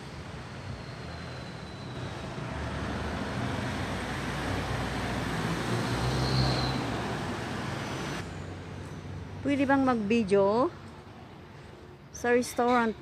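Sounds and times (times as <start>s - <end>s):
vehicle passing: 2.1s - 10.7s.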